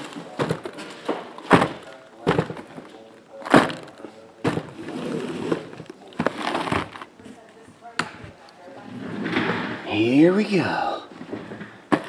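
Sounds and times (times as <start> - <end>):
rustling and sliding: 3.4 - 7.4, 8.8 - 9.8.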